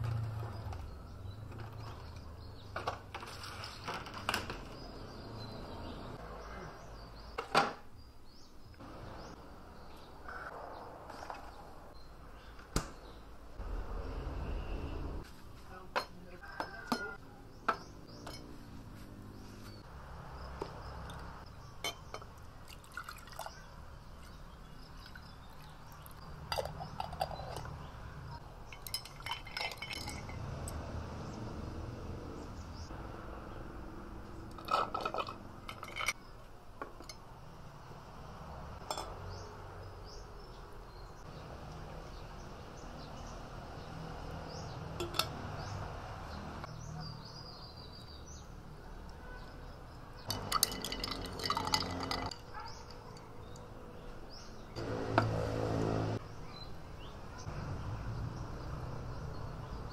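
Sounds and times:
juice pouring over ice: 22.6 - 23.6, 50.3 - 52.4
ice cubes clinking against glass: 28.7 - 30.4, 50.3 - 53.2.

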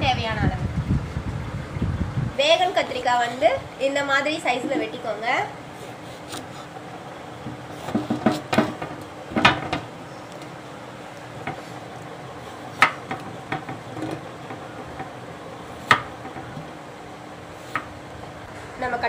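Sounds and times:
knife chopping on wooden board: 7.5 - 9.8, 12.7 - 13.8, 15.8 - 16.5, 17.6 - 17.9.

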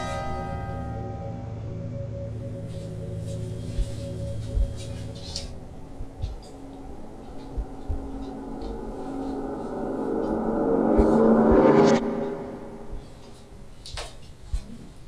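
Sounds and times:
tense drone of pitched tones: 0.0 - 13.8
faint low thuds: 3.7 - 5.0, 6.0 - 8.9.

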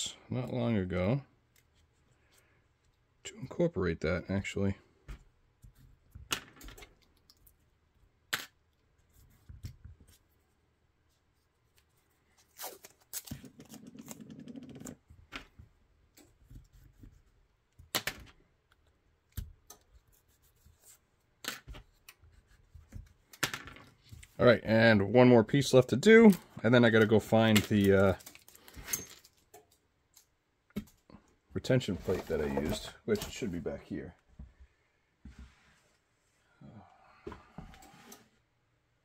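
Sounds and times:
tape being pulled and torn: 11.7 - 15.0.

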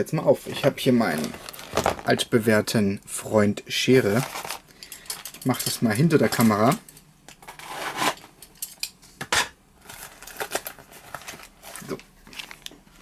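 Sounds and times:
paper rustling: 9.8 - 13.0.

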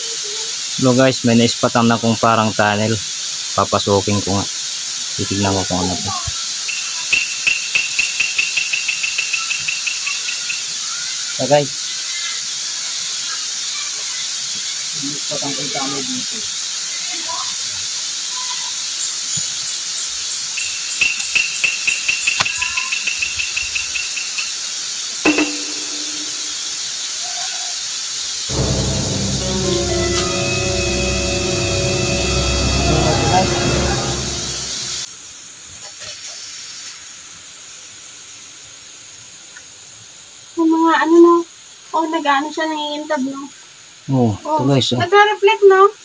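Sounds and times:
insect chorus: 0.0 - 46.0
steady hiss: 0.0 - 46.0
rapid high chirps: 25.3 - 26.8.

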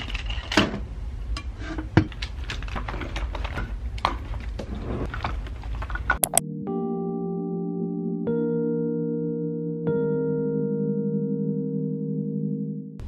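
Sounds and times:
small objects clattering on a desk: 0.0 - 0.8, 1.8 - 6.3
soft music with held tones: 6.2 - 13.0.

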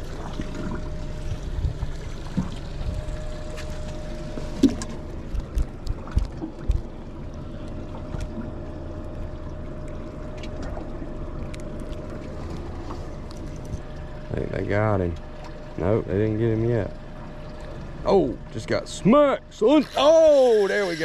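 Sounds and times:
electric trolling motor humming: 19.5 - 21.0.

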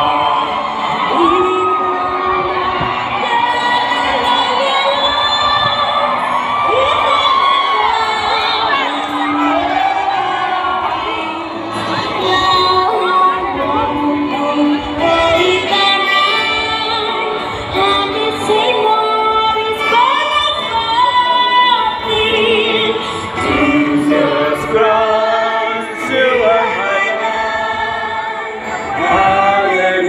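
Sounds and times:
many voices singing together: 0.0 - 30.0.

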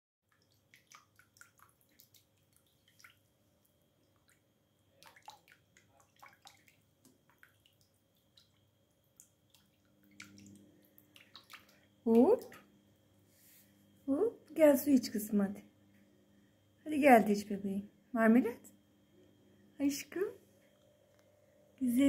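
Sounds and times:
water splashes and drips: 0.3 - 12.6.

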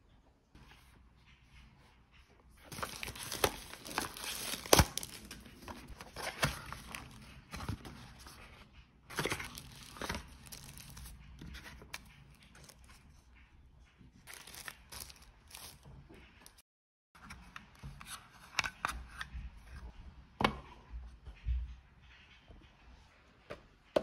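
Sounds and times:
paper packaging crinkling: 2.7 - 8.4, 9.1 - 13.0, 14.3 - 16.6.

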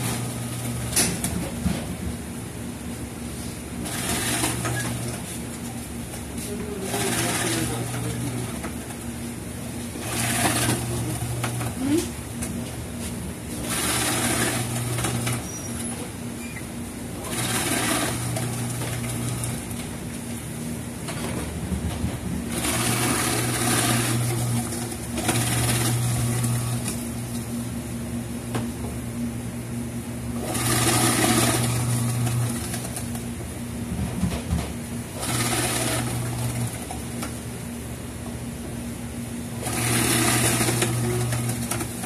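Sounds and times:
motor humming: 3.7 - 27.7, 30.3 - 37.6, 39.6 - 42.0.

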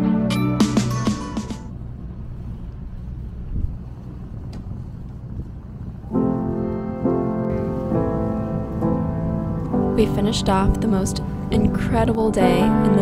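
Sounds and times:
background piano music: 0.0 - 2.0, 6.0 - 13.0
boat engine rumble: 0.9 - 13.0
wind noise: 2.0 - 13.0.

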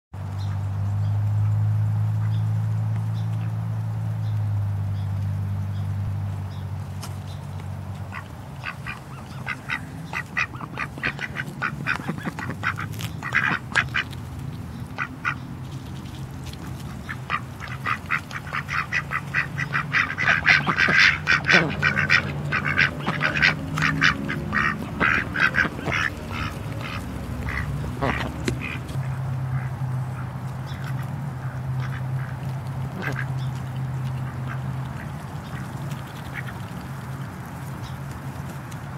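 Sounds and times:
ducks quacking: 7.9 - 38.9.

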